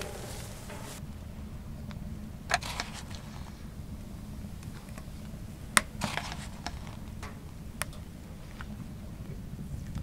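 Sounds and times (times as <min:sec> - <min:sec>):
wooden spoon knocking metal pot: 0:00.0 - 0:01.0
low hum: 0:00.0 - 0:01.7.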